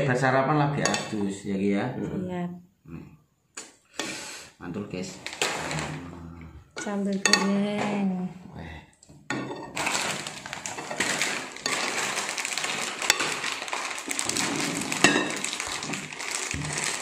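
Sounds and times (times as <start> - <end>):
metal spoon clinking on plates: 0.8 - 1.2, 6.8 - 7.9, 9.3 - 13.5, 15.0 - 15.5
continuous crackling noise: 5.1 - 6.1, 9.5 - 17.0.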